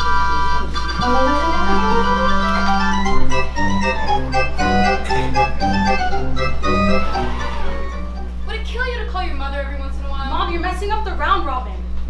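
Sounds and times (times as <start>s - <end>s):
steady low hum: 0.0s - 12.0s
electronic organ chords: 0.8s - 8.5s
pulsing bass beat: 3.0s - 7.3s.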